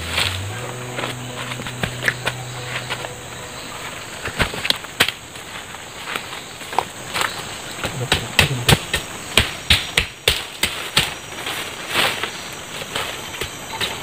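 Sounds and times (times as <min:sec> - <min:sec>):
machete chopping bamboo: 0:07.8 - 0:11.4.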